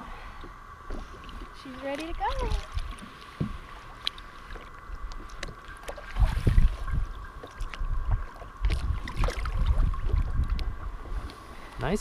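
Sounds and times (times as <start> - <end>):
water sloshing against boat: 0.0 - 12.0
wind buffeting microphone: 6.1 - 12.0.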